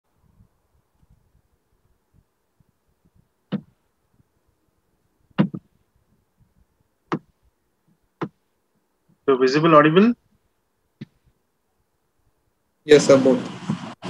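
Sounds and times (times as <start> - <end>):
faint background hiss: 0.1 - 14.0.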